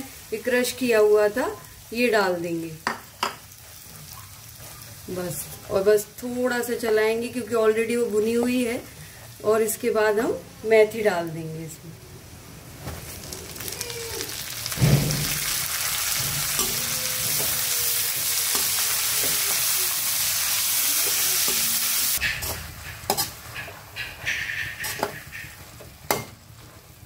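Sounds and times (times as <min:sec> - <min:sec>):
leaves sizzling in hot oil: 0:00.0 - 0:11.7, 0:12.7 - 0:27.0
metal spatula scraping pan: 0:16.1 - 0:19.7, 0:20.9 - 0:26.3.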